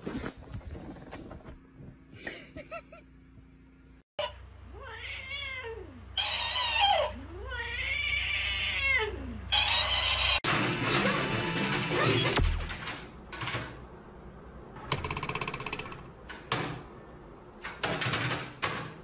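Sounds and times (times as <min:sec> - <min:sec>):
cat yowling: 0:04.2 - 0:10.4.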